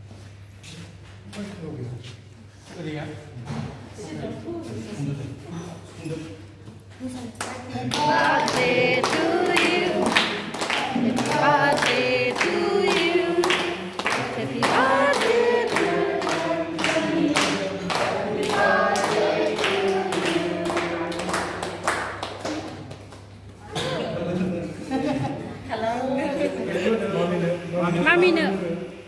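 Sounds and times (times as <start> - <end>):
people clapping: 7.3 - 23.6
group singing: 7.7 - 22.2.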